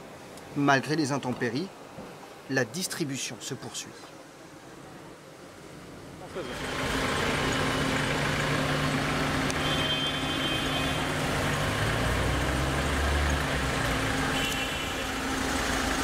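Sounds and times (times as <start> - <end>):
road noise: 0.0 - 16.0
vehicle engine running: 6.4 - 14.5.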